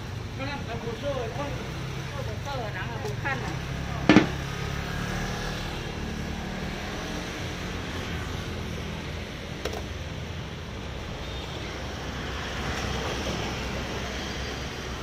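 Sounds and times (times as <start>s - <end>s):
street traffic hum: 0.0s - 15.0s
sharp loud knock: 4.1s - 4.4s.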